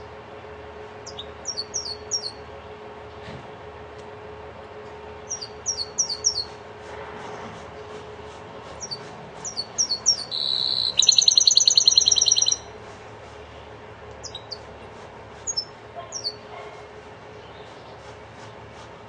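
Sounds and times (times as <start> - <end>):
bird singing: 1.0 - 2.4, 5.3 - 6.6, 8.8 - 12.8, 14.2 - 14.7, 15.5 - 16.5.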